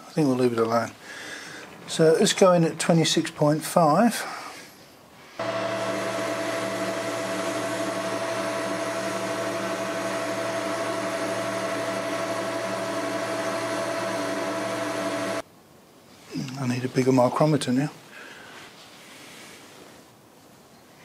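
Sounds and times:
metal lathe humming: 5.4 - 15.4.

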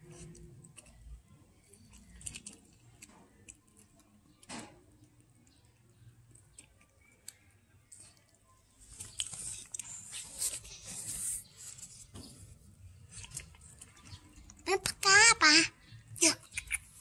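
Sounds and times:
cat crunching fish bones: 0.0 - 7.4.

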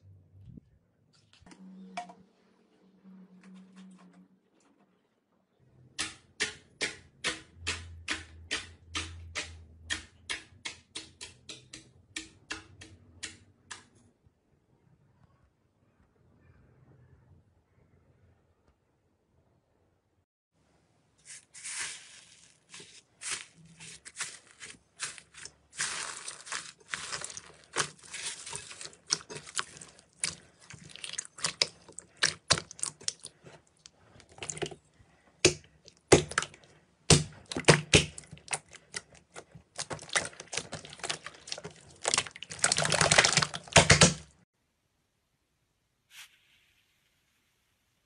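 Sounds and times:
slime crackling and popping: 24.0 - 33.4, 39.7 - 44.2.

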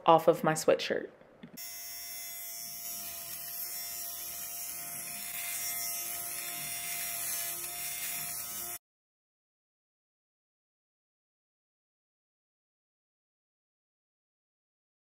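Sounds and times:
electric fabric shaver whirring: 1.6 - 8.8.

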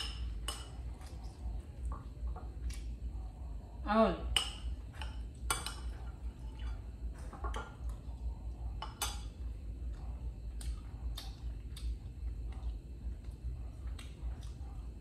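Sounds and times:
low steady hum: 0.0 - 15.0
spoon clinking against bowl: 8.8 - 9.3.

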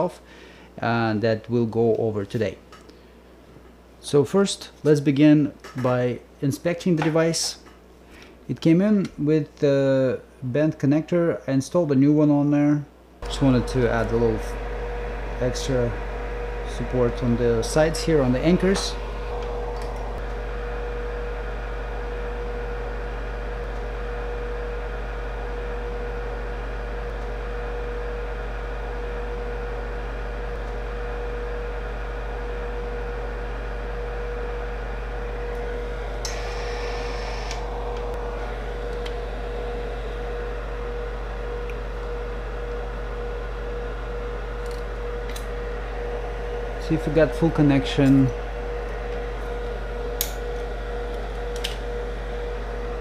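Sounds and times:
low electrical hum: 0.0 - 53.0
machine hum with mid-pitched tone: 12.6 - 53.0.

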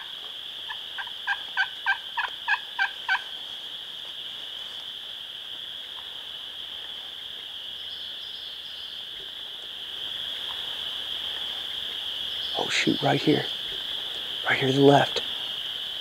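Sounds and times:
frog chorus: 0.0 - 16.0
turkey gobble: 0.7 - 3.3.

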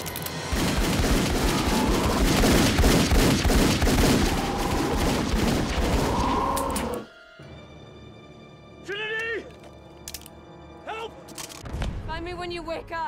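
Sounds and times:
rapid pistol fire: 0.4 - 6.3.

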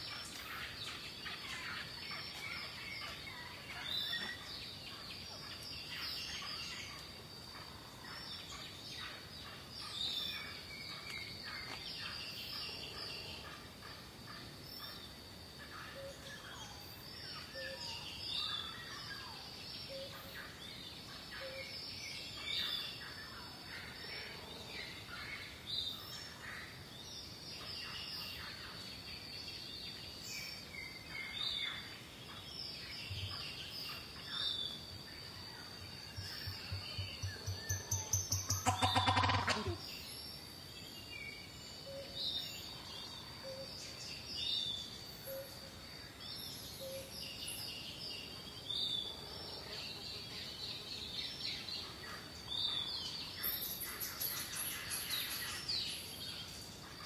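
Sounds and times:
birds chirping: 30.8 - 40.4.

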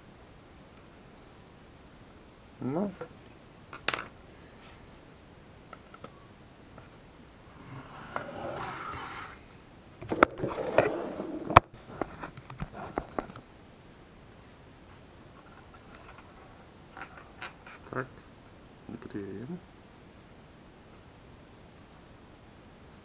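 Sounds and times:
iron scraping on wood: 7.5 - 9.4.

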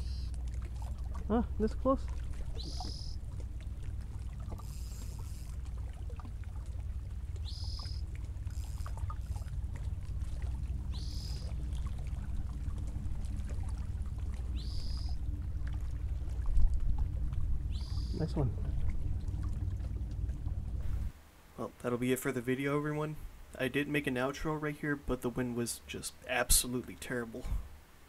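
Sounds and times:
bird chirping: 0.0 - 0.3, 2.5 - 3.2, 7.4 - 8.7, 10.9 - 11.6, 14.5 - 15.2, 17.7 - 18.4
wind buffeting microphone: 5.8 - 21.1.

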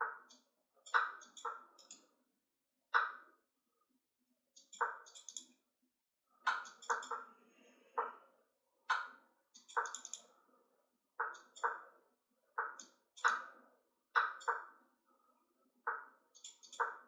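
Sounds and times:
mouse clicks: 0.0 - 2.0, 4.6 - 5.5, 6.5 - 7.3, 8.9 - 10.3, 11.2 - 11.8, 12.6 - 13.5, 14.2 - 14.6, 15.9 - 17.0.

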